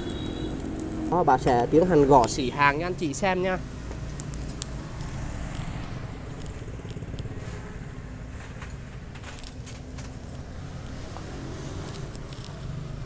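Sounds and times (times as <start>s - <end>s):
faint clicks and crackles: 3.8s - 13.0s.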